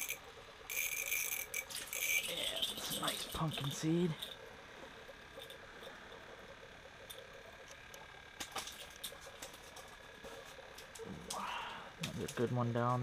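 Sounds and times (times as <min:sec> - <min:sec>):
hands handling fishing reel clicks: 0:00.0 - 0:04.4.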